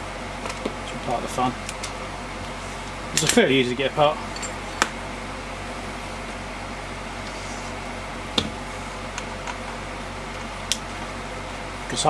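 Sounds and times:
air conditioner hum: 0:00.0 - 0:12.0.

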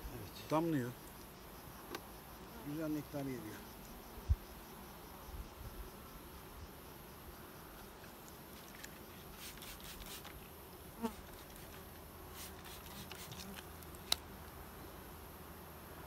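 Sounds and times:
bee flying past: 0:02.2 - 0:14.4.

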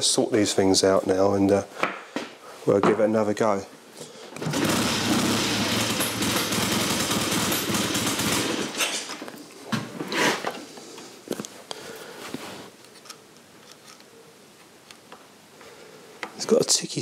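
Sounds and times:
motorcycle engine revving: 0:04.4 - 0:08.8.

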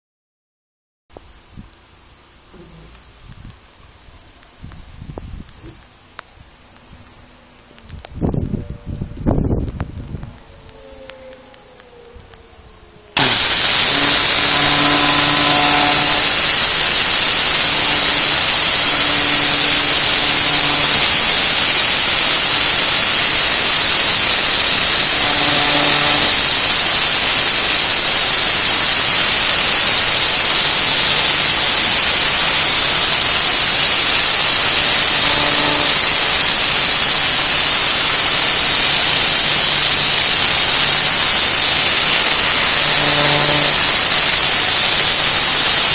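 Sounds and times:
low hum: 0:07.1 - 0:45.9
pressure washer spraying brickwork: 0:13.1 - 0:45.9.

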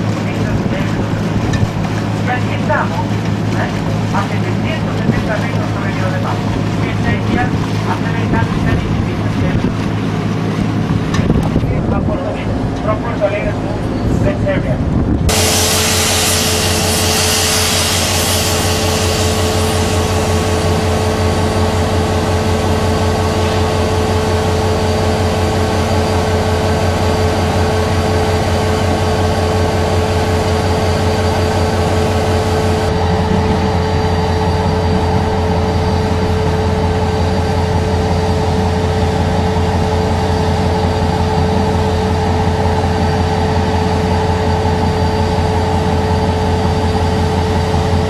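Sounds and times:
constant whine: 0:00.0 - 0:48.0
steady low drone: 0:00.0 - 0:48.0
hiss of escaping steam: 0:15.3 - 0:20.5.

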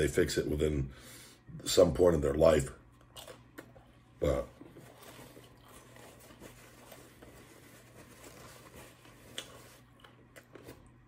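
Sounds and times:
low room hum: 0:00.0 - 0:11.0
person chewing: 0:02.9 - 0:11.0.

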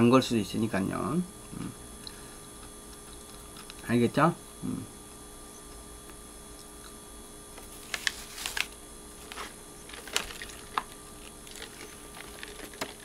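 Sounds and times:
paper wrapping crinkling: 0:07.6 - 0:13.0.

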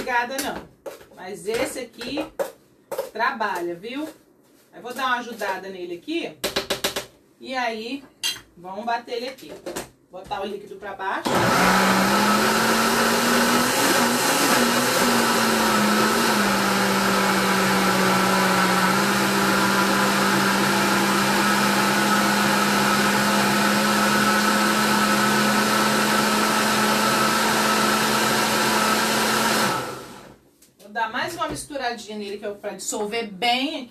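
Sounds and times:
blender motor running: 0:11.3 - 0:30.4.

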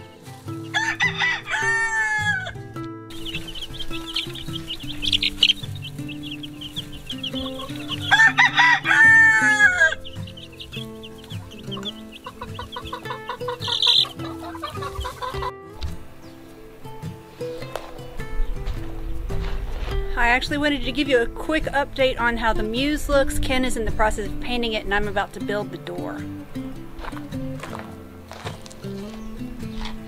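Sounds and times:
rooster crowing: 0:00.7 - 0:02.6, 0:07.3 - 0:10.1
chicks peeping: 0:03.1 - 0:15.5.

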